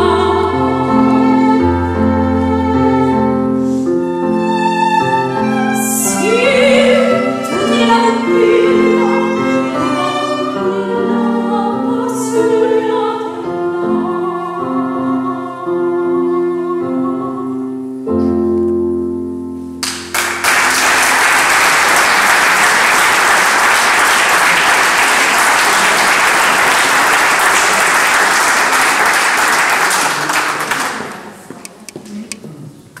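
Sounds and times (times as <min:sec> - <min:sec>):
chamber ensemble playing: 0:03.9 - 0:15.6
audience applause: 0:19.8 - 0:31.5.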